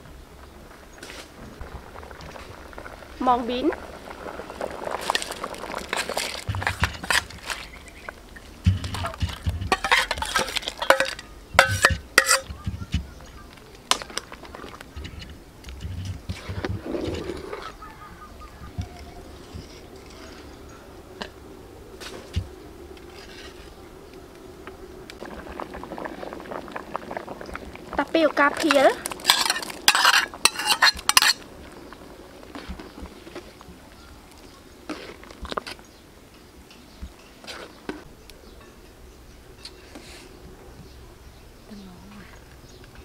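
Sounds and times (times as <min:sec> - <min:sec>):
low rumble of boiling: 0:00.0 - 0:43.0
beans splashing into boiling liquid: 0:01.6 - 0:08.2
dull thuds: 0:08.6 - 0:09.8
metal bowl clinking against pot: 0:09.3 - 0:12.5, 0:29.2 - 0:31.4.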